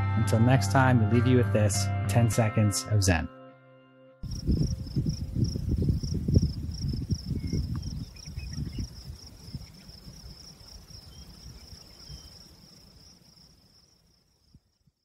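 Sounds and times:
insects chirping in a pulsing trill: 4.2 - 15.0.

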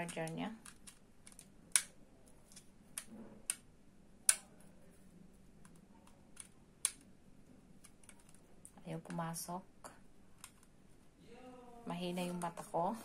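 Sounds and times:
plastic clicks and taps: 0.0 - 1.9.

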